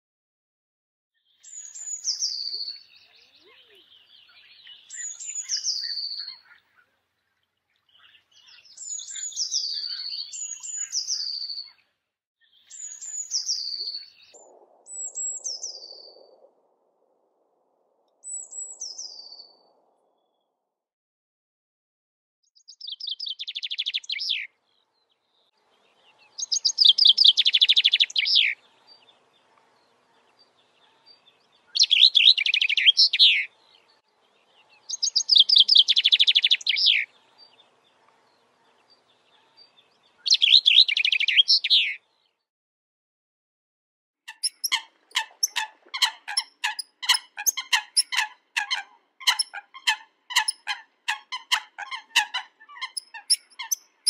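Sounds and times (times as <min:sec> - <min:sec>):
chaffinch singing trills: 0:01.4 - 0:06.6, 0:07.9 - 0:11.8, 0:12.5 - 0:16.1, 0:25.8 - 0:42.2, 0:44.3 - 0:54.0
bird short sharp calls: 0:44.3 - 0:54.0.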